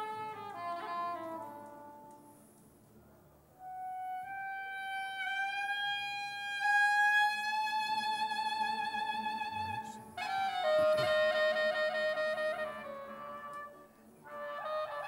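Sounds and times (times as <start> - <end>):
violin long note: 0.0 - 2.4, 3.6 - 15.0.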